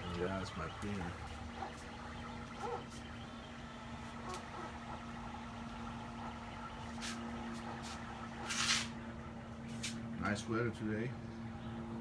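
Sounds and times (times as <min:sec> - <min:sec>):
printer humming: 0:00.0 - 0:12.0.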